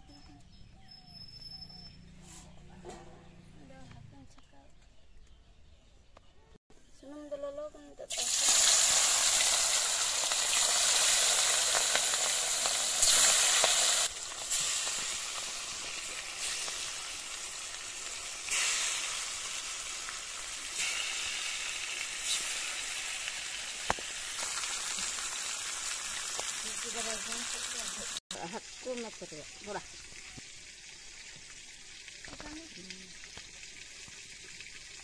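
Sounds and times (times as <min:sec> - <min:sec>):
fish sizzling in hot oil: 0:08.0 - 0:35.0.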